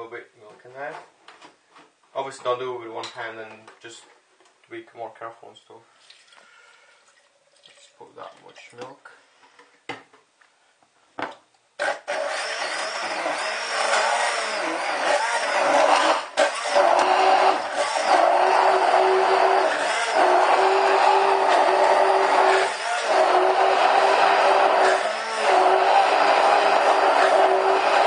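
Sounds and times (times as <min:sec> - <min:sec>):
stick blender motor whine: 0:11.8 - 0:28.0.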